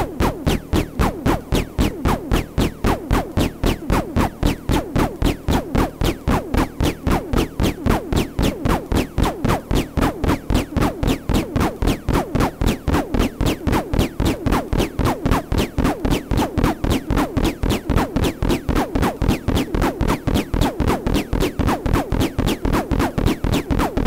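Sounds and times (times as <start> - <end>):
low bass beat: 0.0 - 24.0
synthesizer zaps falling in pitch: 0.0 - 24.0.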